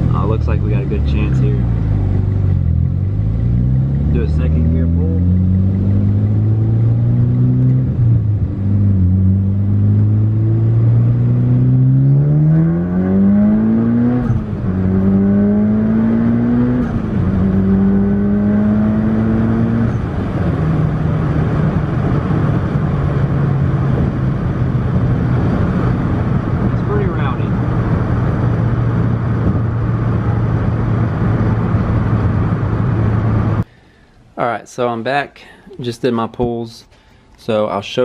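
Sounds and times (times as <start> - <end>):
car engine accelerating: 0.0 - 33.6.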